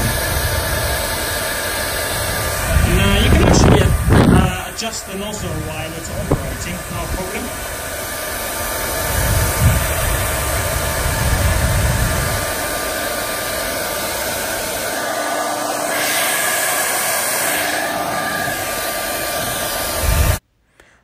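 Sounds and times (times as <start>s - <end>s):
hair dryer blowing air: 0.0s - 20.4s.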